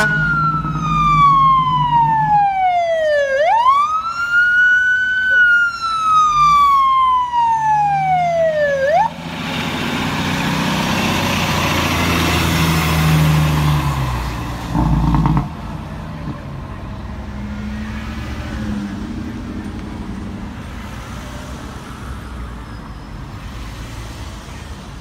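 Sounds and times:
fire engine siren winding down: 0:00.0 - 0:13.9
fire engine driving past: 0:00.0 - 0:25.0.

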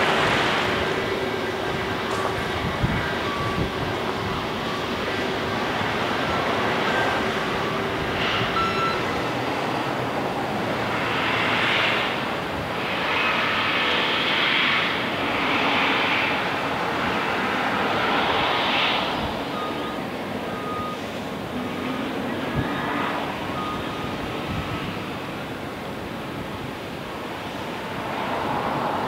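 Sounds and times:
distant heavy machinery: 0:00.0 - 0:29.0
hiss: 0:12.8 - 0:16.4.

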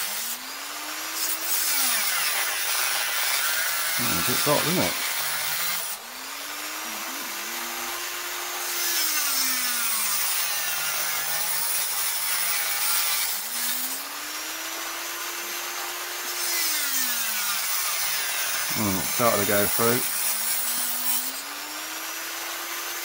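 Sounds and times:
rotary tool grinding steel: 0:00.0 - 0:23.0.

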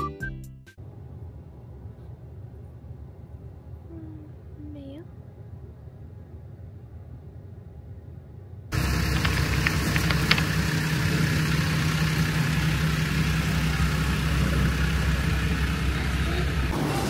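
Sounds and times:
vehicle engine idling: 0:08.7 - 0:17.0.

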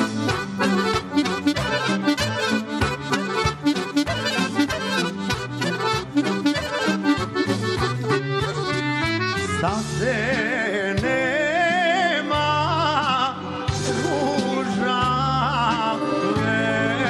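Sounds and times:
vibrato lead melody: 0:00.0 - 0:11.6
live folk band playing: 0:00.0 - 0:17.0
steady bass: 0:00.0 - 0:17.0.

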